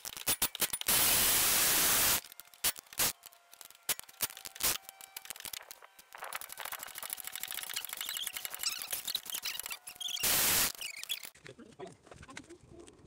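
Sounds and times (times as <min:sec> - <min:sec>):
rapid clicking: 0:02.1 - 0:11.4.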